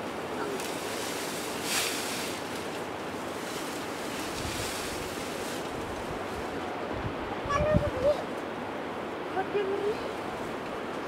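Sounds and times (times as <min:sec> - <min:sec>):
dry grass rustling: 0:00.0 - 0:07.0
wind rushing: 0:00.8 - 0:08.2.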